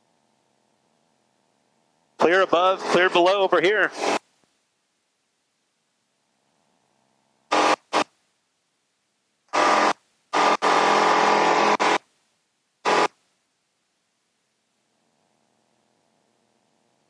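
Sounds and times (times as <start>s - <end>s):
airflow noise: 2.2s - 4.2s
intercom squelch cutting in and out: 3.9s - 4.2s, 7.5s - 8.1s.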